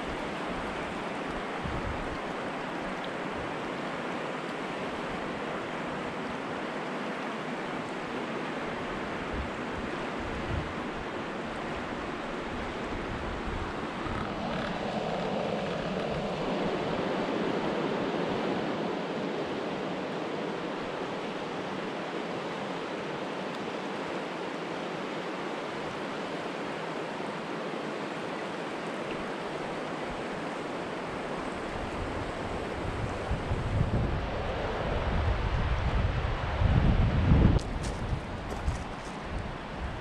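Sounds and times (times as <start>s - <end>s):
river water rushing: 0.0s - 36.8s, 37.6s - 40.0s
wind buffeting microphone: 9.3s - 11.0s, 11.8s - 18.0s, 31.6s - 40.0s.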